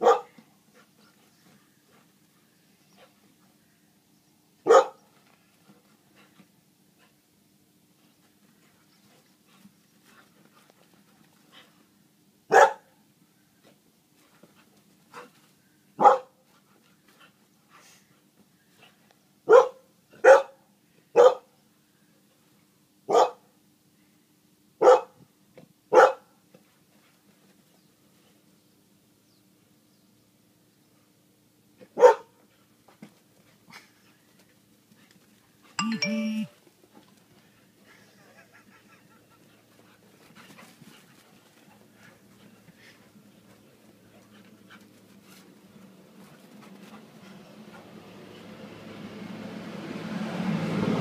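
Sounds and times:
dog barking: 0.0s - 0.3s, 4.6s - 5.0s, 12.5s - 12.9s, 16.0s - 16.3s, 19.5s - 20.6s, 21.2s - 21.5s, 23.1s - 23.4s, 24.8s - 25.2s, 25.9s - 26.3s, 32.0s - 32.4s
dogs panting: 37.0s - 48.4s.

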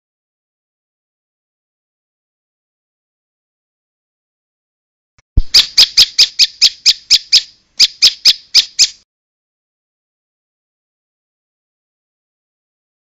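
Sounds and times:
bird calling sharp high chips: 5.4s - 9.0s.

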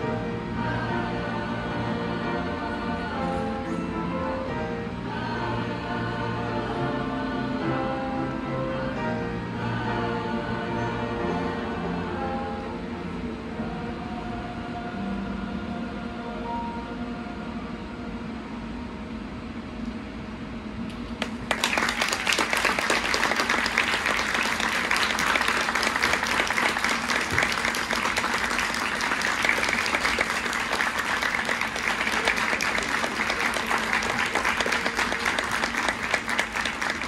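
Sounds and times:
audience applause: 21.2s - 37.0s.

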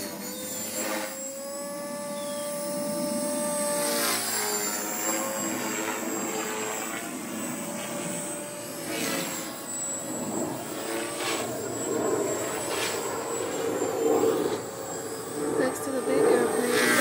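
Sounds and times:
helicopter rotor whoosh: 0.0s - 17.0s
motor and gear whine: 0.0s - 17.0s.

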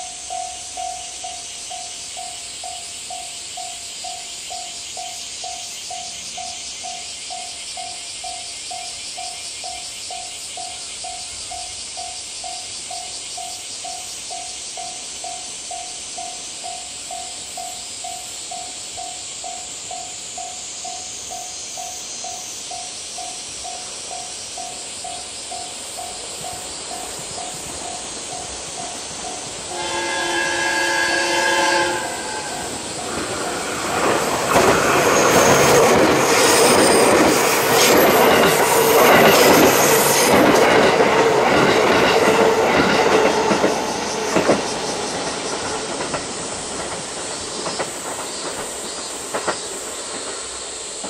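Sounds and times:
level-crossing bell dinging: 0.0s - 29.8s
train wheel and rail noise: 0.0s - 51.0s
train horn: 29.6s - 33.2s.

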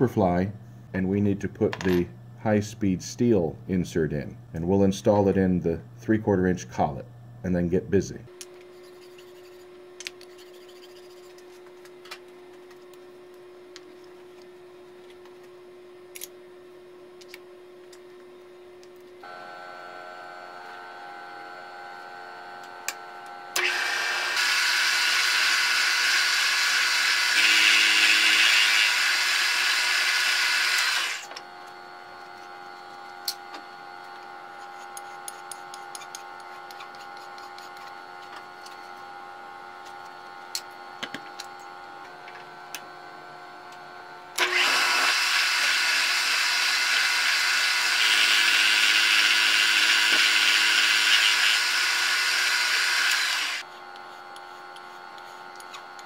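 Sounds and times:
milling machine spindle running: 19.3s - 39.0s, 44.3s - 56.0s
loud cutting of aluminum: 23.5s - 31.3s, 44.4s - 54.8s.

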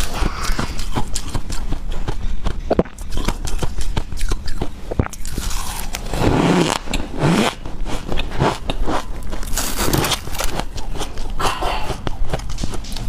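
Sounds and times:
crunching ice: 7.9s - 11.2s.

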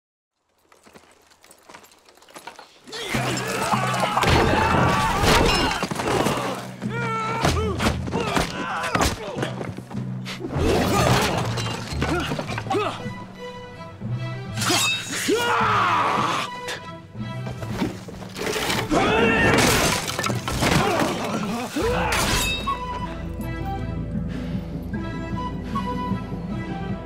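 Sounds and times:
things smashing: 0.6s - 6.7s, 10.5s - 13.0s, 17.7s - 22.8s
men shouting: 2.9s - 9.5s, 15.2s - 16.5s, 18.9s - 19.7s
film soundtrack music: 2.9s - 27.0s.

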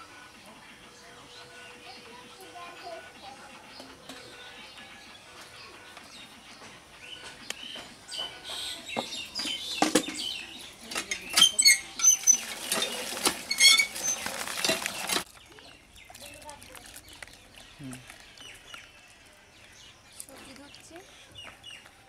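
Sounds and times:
hand pump squeaking and clanking: 8.3s - 15.3s
water splashing into steel bowl: 12.0s - 15.2s.

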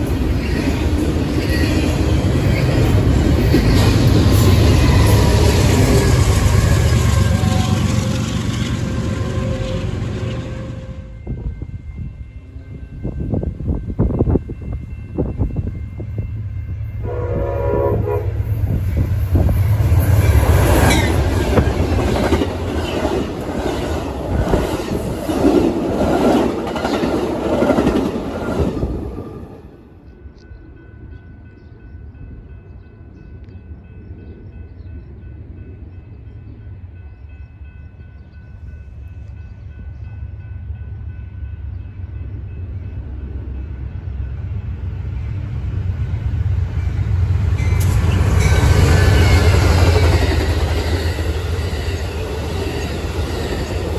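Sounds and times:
train horn blast: 4.4s - 11.6s, 16.8s - 18.8s.

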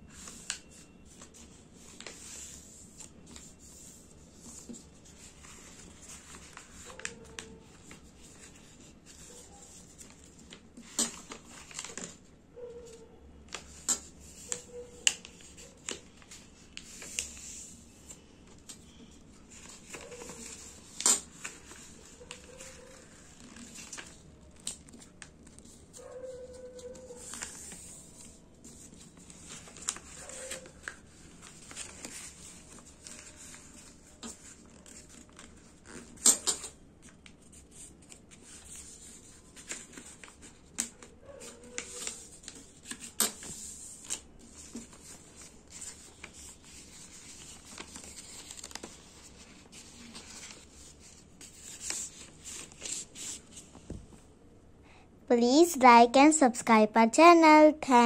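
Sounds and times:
paper rustling and crinkling: 0.1s - 54.2s.

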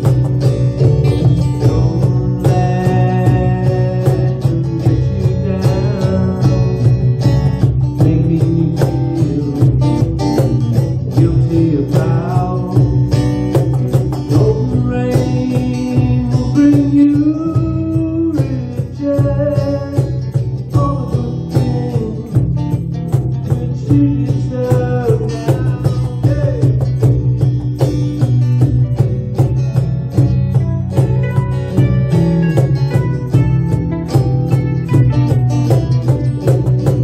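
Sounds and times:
cajon beat: 0.0s - 37.0s
guitars strummed and picked: 0.0s - 37.0s.

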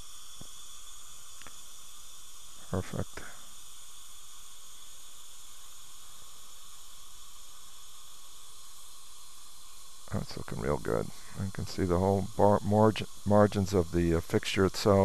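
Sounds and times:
dental equipment hissing: 0.0s - 15.0s
faint ticks: 1.4s - 1.6s.

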